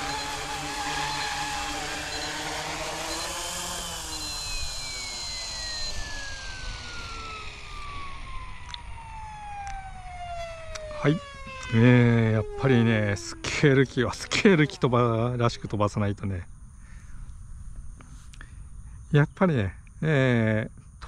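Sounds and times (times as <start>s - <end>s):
rc helicopter motor whine: 0.0s - 15.8s.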